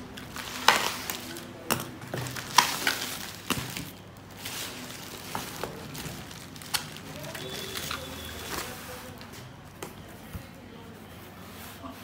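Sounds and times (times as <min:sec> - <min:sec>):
bubble wrap crinkling: 0:00.0 - 0:09.5.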